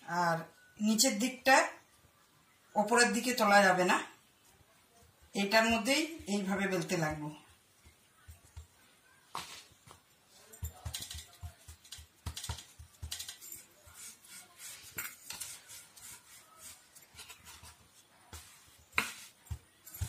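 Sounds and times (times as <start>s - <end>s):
rolling pin on wooden board: 10.8s - 20.0s.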